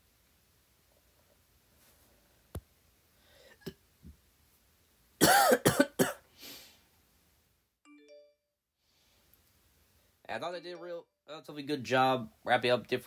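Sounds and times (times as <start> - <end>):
man coughing: 5.2 - 6.2.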